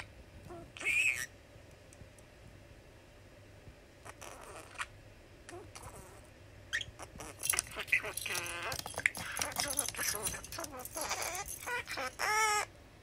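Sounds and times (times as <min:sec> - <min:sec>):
budgerigar chattering: 0:00.8 - 0:01.3, 0:06.8 - 0:12.7.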